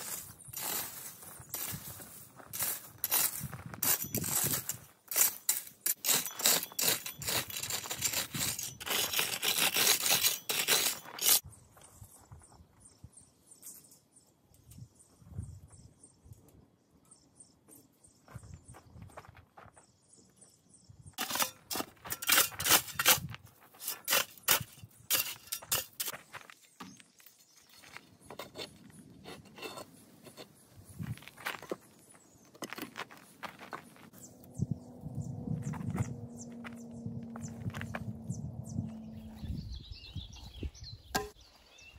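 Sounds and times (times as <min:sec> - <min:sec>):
rake scraping gravel: 0:00.0 - 0:11.4, 0:21.2 - 0:34.4.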